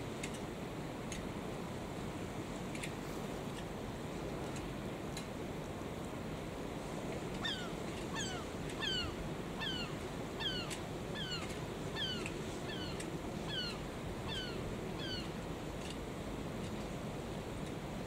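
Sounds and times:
sea: 0.0 - 18.0
wind: 0.0 - 18.0
bird calling: 7.4 - 15.4.

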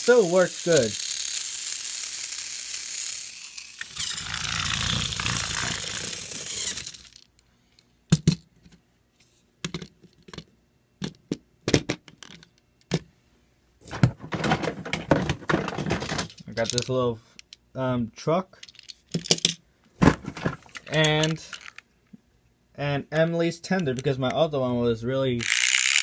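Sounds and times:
toy motor whirring: 0.0 - 7.4, 16.6 - 17.6, 21.0 - 21.8, 25.4 - 26.0
plastic toys clicking and knocking: 3.8 - 7.3, 9.6 - 13.0, 13.9 - 17.6, 18.6 - 19.6, 20.3 - 21.8, 25.4 - 26.0.

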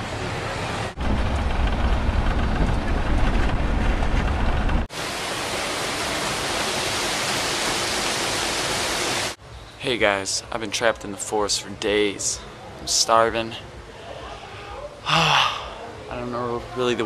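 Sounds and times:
steady hiss: 4.9 - 10.6.

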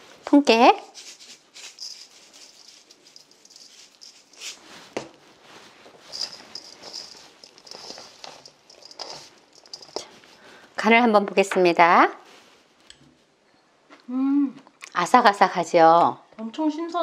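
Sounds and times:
vegetables tossed in a bowl: 0.3 - 10.2.

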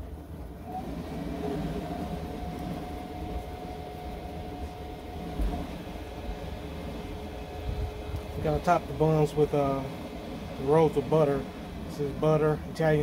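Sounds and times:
mechanical hum: 0.0 - 13.0
held tone: 0.7 - 8.0.

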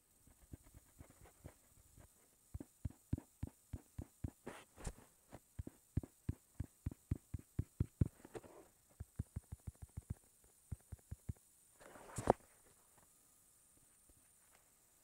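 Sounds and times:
taps on a touchscreen: 5.6 - 8.2, 9.0 - 11.4.

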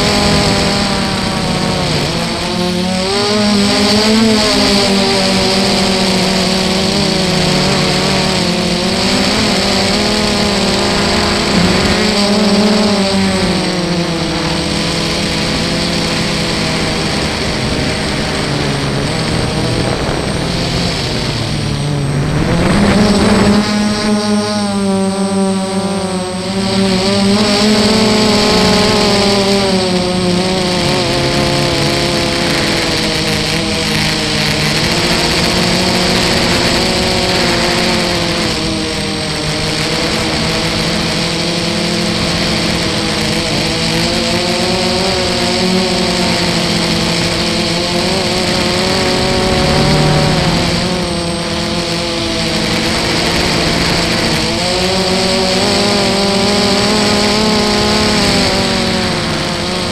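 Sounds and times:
quadcopter motors whining: 0.0 - 59.9
steady rushing hiss: 5.0 - 23.6, 30.0 - 54.6.

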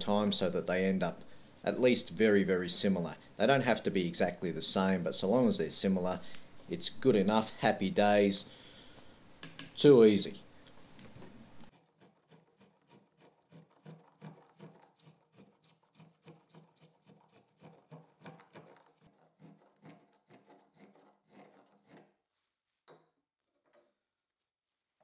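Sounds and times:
spokeshave shaving wood: 11.8 - 22.1.

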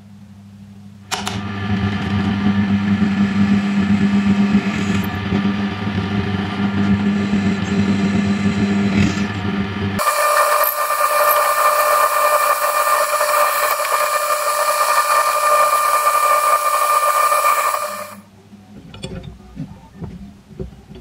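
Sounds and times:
drill press drilling steel: 10.0 - 18.2.

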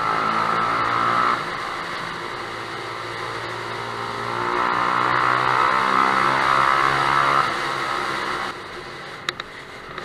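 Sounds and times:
motorcycle engine in tunnel: 0.0 - 10.0.

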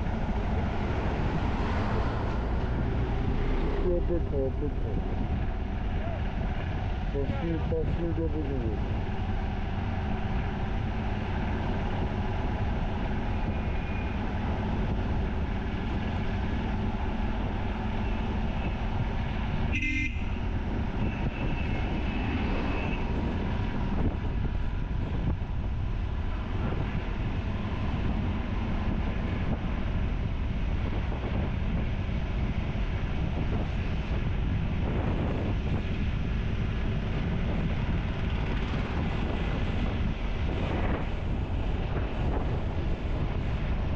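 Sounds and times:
road and wind noise: 0.0 - 43.9
vehicle horn tooting: 19.7 - 20.4.

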